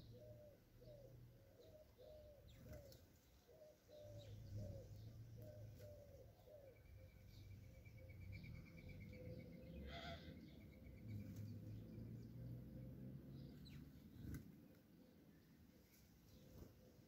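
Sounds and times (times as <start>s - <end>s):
dove cooing: 0.0s - 7.3s, 9.0s - 10.6s, 16.3s - 17.0s
faint sparrow chirps: 0.0s - 17.0s.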